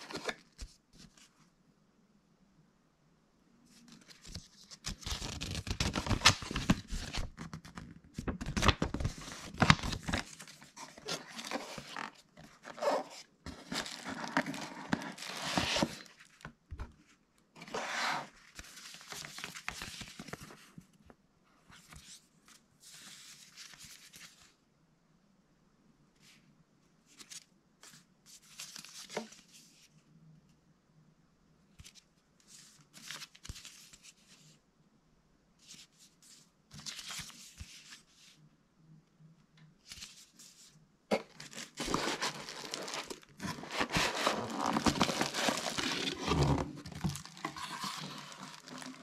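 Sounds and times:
packaging rustling and crinkling: 0:03.9 - 0:16.4, 0:41.1 - 0:49.0.

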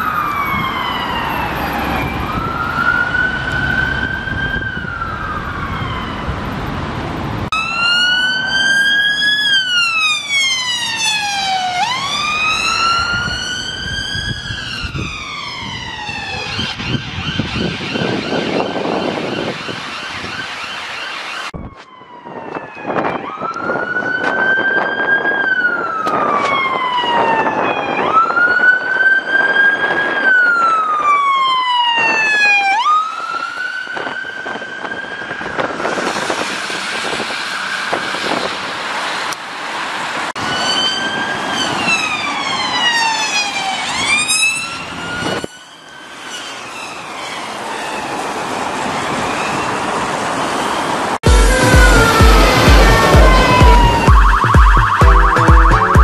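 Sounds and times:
ambulance siren wailing: 0:00.0 - 0:38.8, 0:40.2 - 0:56.0
police car siren: 0:00.0 - 0:39.2, 0:40.1 - 0:56.0.

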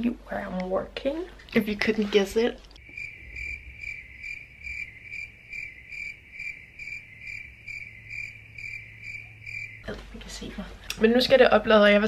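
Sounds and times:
high-pitched cricket-like chirping: 0:02.8 - 0:09.9.

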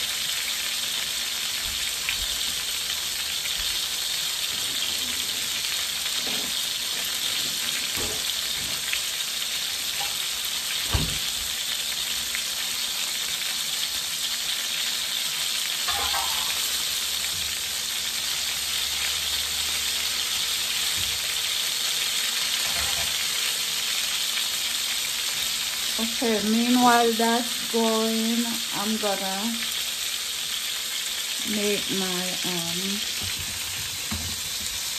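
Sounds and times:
fish sizzling in oil: 0:00.0 - 0:34.9
kitchen handling knocks and clatter: 0:10.9 - 0:11.3, 0:33.2 - 0:34.8.

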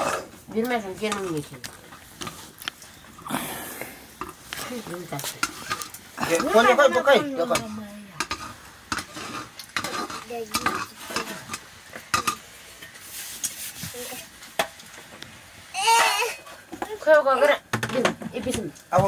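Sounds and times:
metal utensil scraping in pot: 0:01.0 - 0:01.6, 0:05.2 - 0:06.8, 0:07.5 - 0:13.8.

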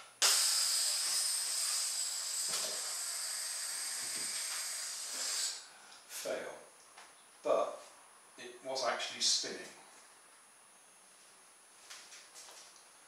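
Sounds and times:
air hissing out of balloon: 0:00.2 - 0:05.9.

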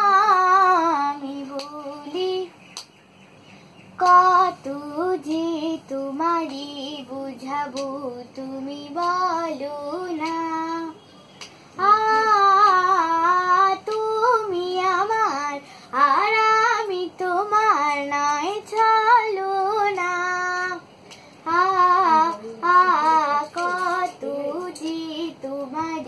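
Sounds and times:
girl singing: 0:00.0 - 0:02.6, 0:04.0 - 0:26.0
short breaths: 0:15.6 - 0:16.0, 0:21.0 - 0:21.5.

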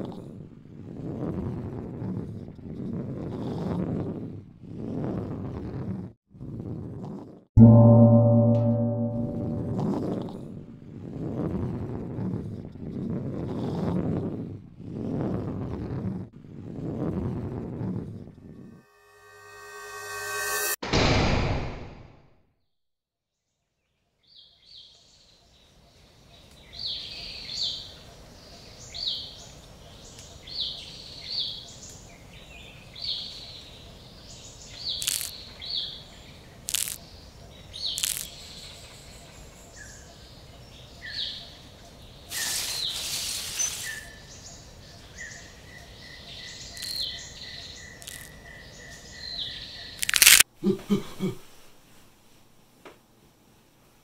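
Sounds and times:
loud sudden hit: 0:07.6 - 0:10.0, 0:18.9 - 0:22.2
steady high tone: 0:07.6 - 0:10.1, 0:18.6 - 0:20.8
sharp cracks: 0:50.0 - 0:50.4.

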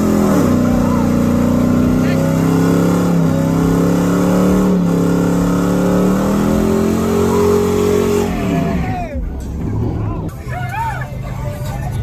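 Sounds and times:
pickup engine at high revs: 0:00.0 - 0:09.0.

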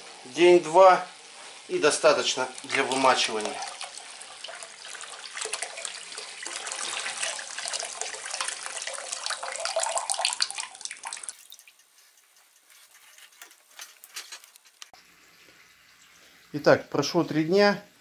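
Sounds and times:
water pouring into basin: 0:01.8 - 0:11.8.

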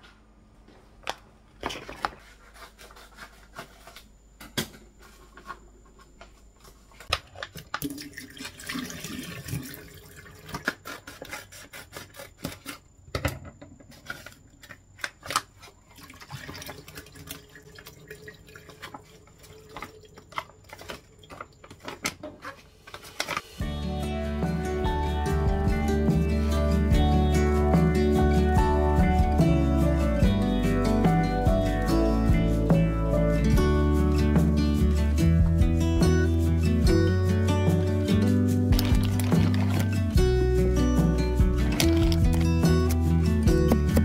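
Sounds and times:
water splashing in sink: 0:07.6 - 0:11.0, 0:15.8 - 0:22.1, 0:38.7 - 0:40.0, 0:41.7 - 0:42.6
plastic pouch rustling: 0:38.7 - 0:40.2, 0:41.6 - 0:43.0.

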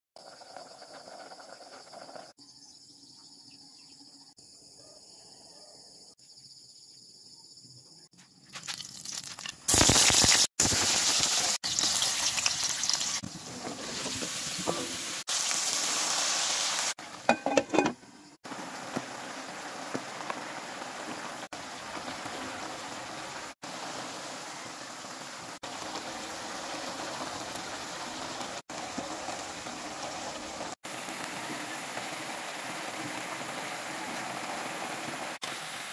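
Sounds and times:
vegetables sizzling in a wok: 0:00.2 - 0:02.3, 0:08.7 - 0:35.9
water boiling in a pot: 0:00.2 - 0:02.4, 0:10.1 - 0:35.9.

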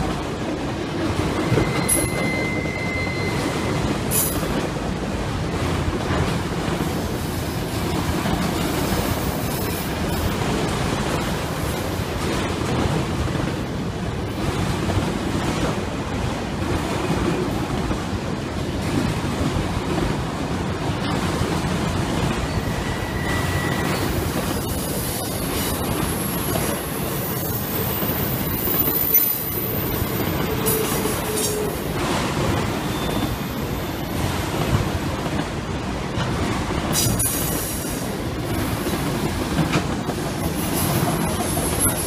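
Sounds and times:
train cars rumbling: 0:00.0 - 0:42.0
high squeal: 0:01.4 - 0:04.4, 0:22.5 - 0:31.8.

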